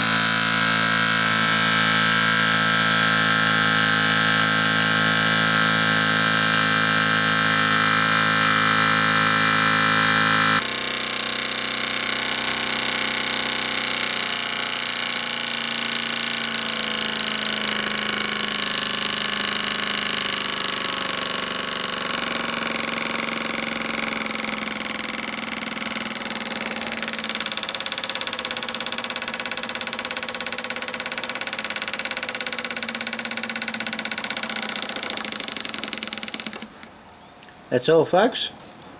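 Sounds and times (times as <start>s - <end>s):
small steam engine buzzing: 0.0s - 37.0s.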